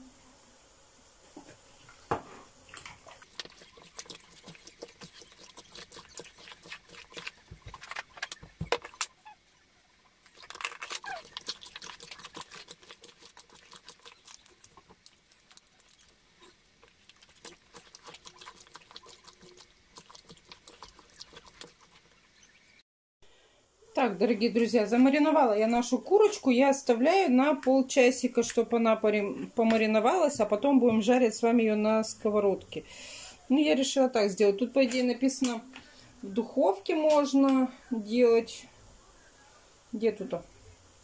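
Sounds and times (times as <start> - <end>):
squelching of raw meat: 10.2 - 22.1.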